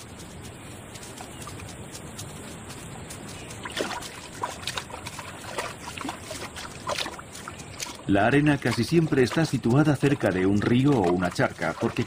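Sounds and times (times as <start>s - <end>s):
water sloshing and splashing: 3.6s - 12.0s.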